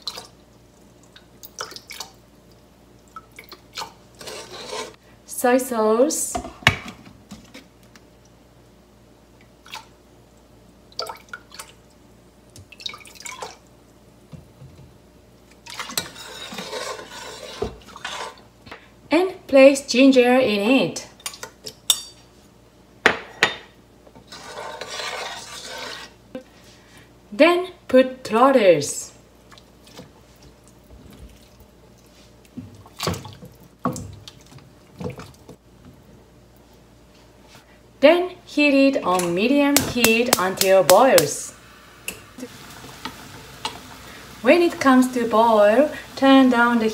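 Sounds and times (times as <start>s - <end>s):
liquid stirred in metal pot: 3.4s - 5.0s, 15.5s - 18.5s, 24.1s - 26.2s
liquid trickling and splashing: 12.7s - 13.7s.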